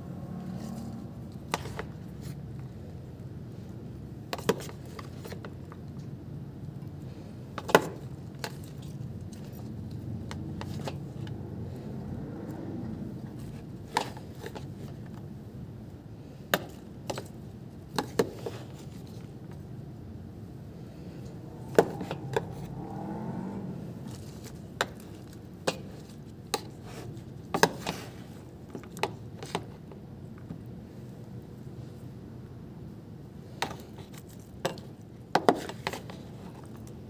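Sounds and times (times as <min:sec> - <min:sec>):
low steady hum: 0:00.0 - 0:27.5.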